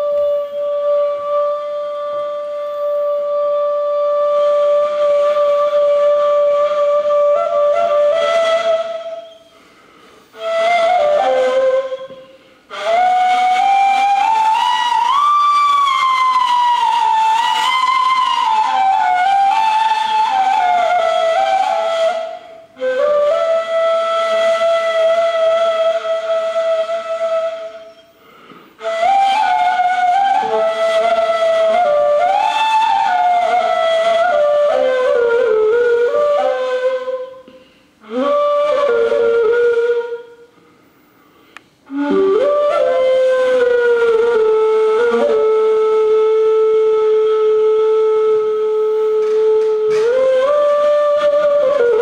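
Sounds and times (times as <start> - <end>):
end-blown reed flute melody: 28.8 - 40.4, 41.9 - 52.0.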